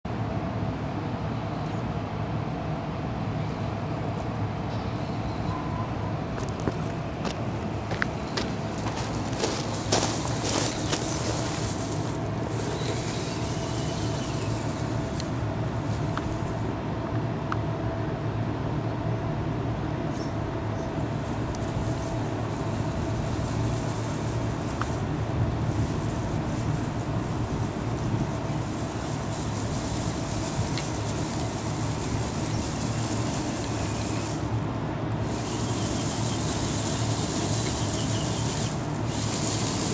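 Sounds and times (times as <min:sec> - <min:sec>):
toy car electric motor running: 0:09.4 - 0:16.7, 0:20.9 - 0:39.9.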